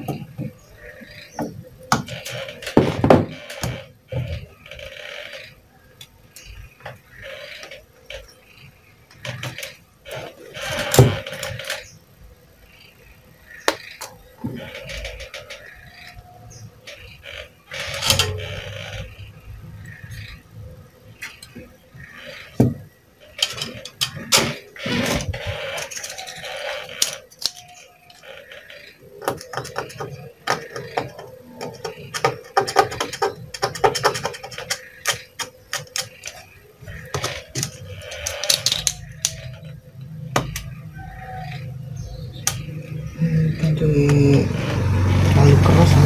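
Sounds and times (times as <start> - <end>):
hand tools scraping circuit board: 23.4 - 28.2, 29.2 - 39.7.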